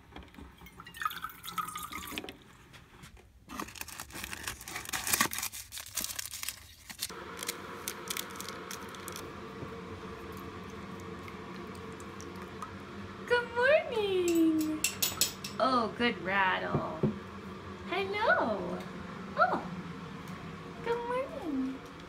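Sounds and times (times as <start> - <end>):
wrappers rustling and crinkling: 3.5 - 9.2
steady hum: 6.9 - 22.0
water running from a tap: 10.1 - 12.9.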